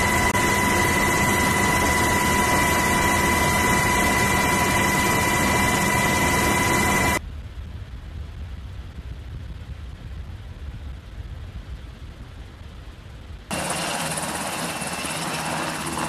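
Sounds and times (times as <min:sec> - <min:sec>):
helicopter rotor and engine rush: 0:00.0 - 0:07.2, 0:13.5 - 0:16.0
high whine: 0:00.0 - 0:07.2.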